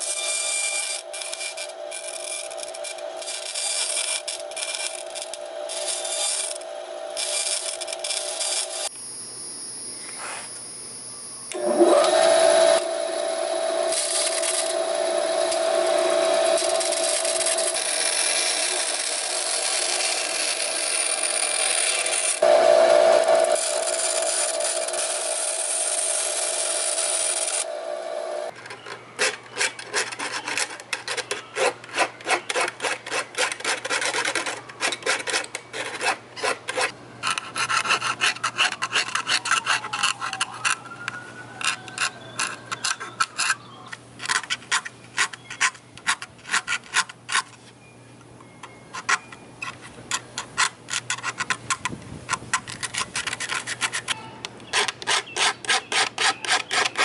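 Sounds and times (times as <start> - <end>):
band saw running: 0.0 - 9.0, 11.4 - 28.5
needle file strokes: 10.0 - 10.5.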